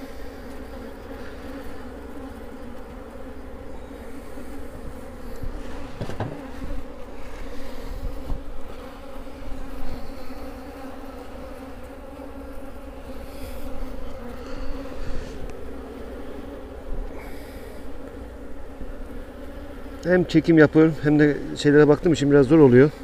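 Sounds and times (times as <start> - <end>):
bees buzzing in a low hum: 0.0 - 23.0
knocks from handling hive: 5.4 - 6.9.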